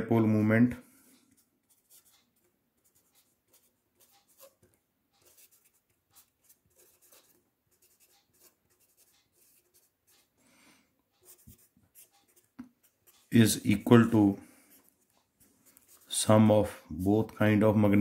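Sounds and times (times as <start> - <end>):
pencil scratching on paper: 1.3 - 10.3, 11.2 - 16.5.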